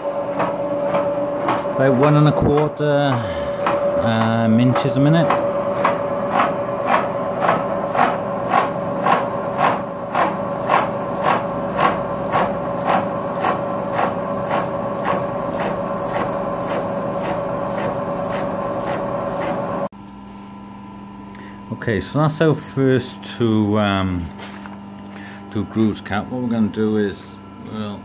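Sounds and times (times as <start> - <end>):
milling machine whine: 0.0 - 19.9
cutting ticks: 3.6 - 19.9.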